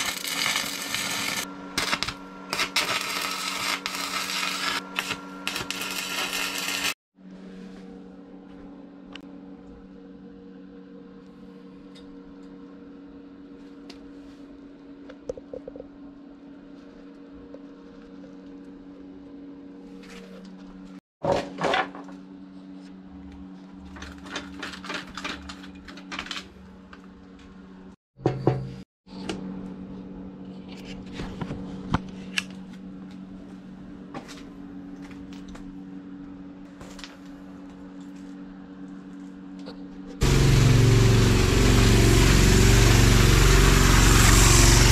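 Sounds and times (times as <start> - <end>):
welder arc crackling: 0.0 - 7.0.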